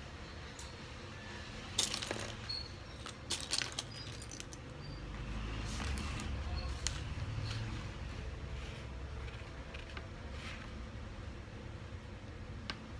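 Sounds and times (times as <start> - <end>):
plastic bricks clattering: 1.8 - 4.7.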